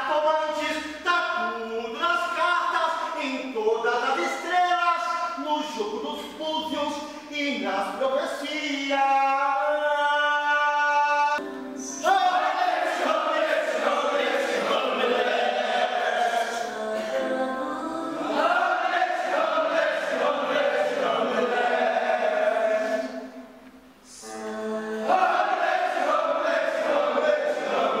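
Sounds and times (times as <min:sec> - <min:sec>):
choir singing held chords: 0:11.1 - 0:28.0.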